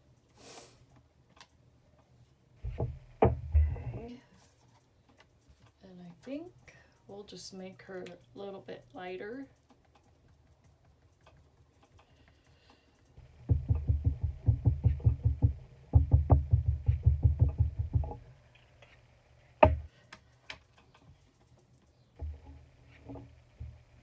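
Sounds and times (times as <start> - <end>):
sharp knock: 2.6 - 4.0, 13.4 - 18.2, 19.6 - 19.9.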